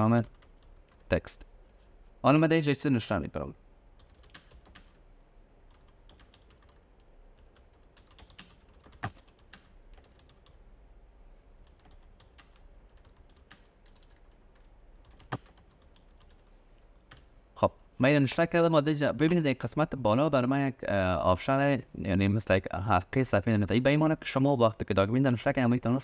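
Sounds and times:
typing on computer keyboard: 0.2s - 1.1s, 4.0s - 5.0s, 5.7s - 10.6s, 11.6s - 16.5s.

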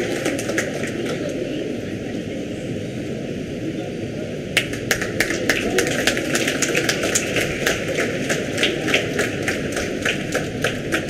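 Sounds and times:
audience applauding: 0.0s - 1.5s, 4.6s - 11.0s
hall background noise: 0.0s - 11.0s.

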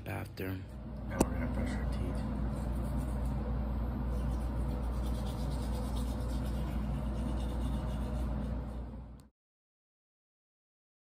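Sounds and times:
low steady hum: 0.0s - 9.3s
toothbrush scrubbing teeth: 2.5s - 3.4s, 4.1s - 8.9s.

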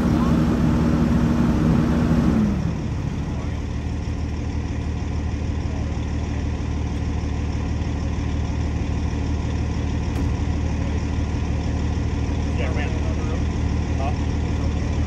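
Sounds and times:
diesel truck engine running: 0.0s - 15.0s.

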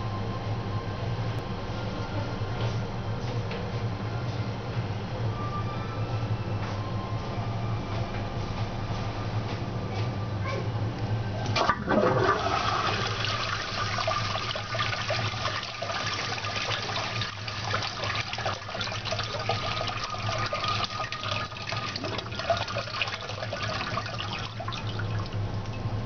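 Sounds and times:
toilet flushing: 11.5s - 25.8s.

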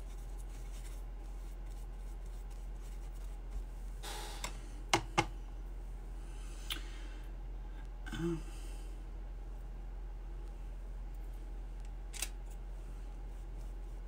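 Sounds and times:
soft rustle: 0.0s - 4.0s, 12.4s - 14.0s.

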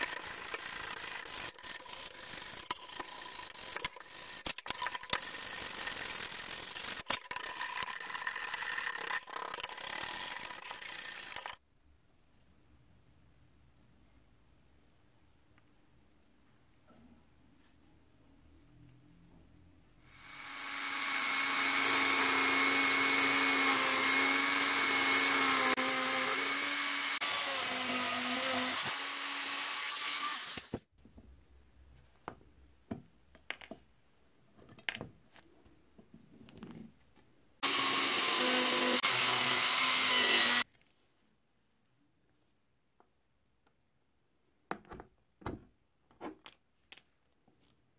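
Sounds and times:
rotary tool cutting steel: 0.0s - 11.6s, 20.1s - 30.7s, 37.6s - 40.7s.

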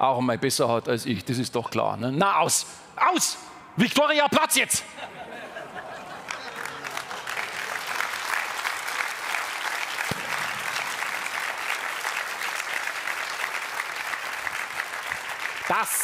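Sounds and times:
audience applauding: 6.0s - 16.0s.

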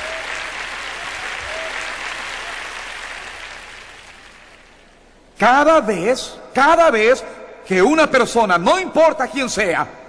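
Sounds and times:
congregation applauding: 0.0s - 5.0s.

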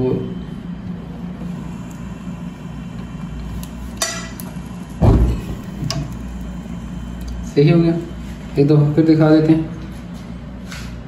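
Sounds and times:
arc lighter buzzing click: 3.0s - 4.6s, 5.2s - 7.4s
gas burner igniting thump: 3.6s - 6.2s.

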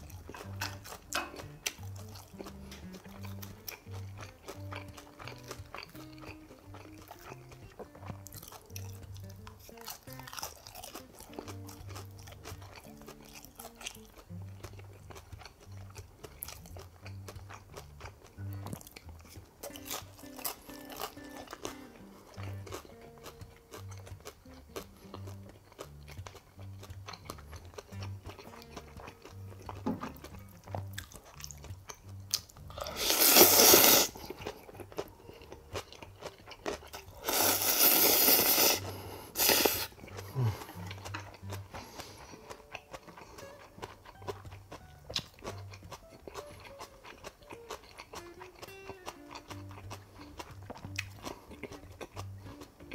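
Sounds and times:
soft background music: 0.0s - 52.9s
wet chewing and mouth clicks: 0.0s - 52.9s
man slurping noodles: 32.8s - 34.6s, 37.2s - 41.1s.

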